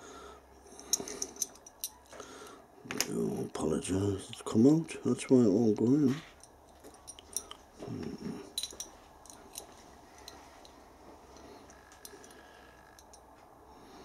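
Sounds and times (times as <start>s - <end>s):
small metallic clicks: 11.4s - 13.2s.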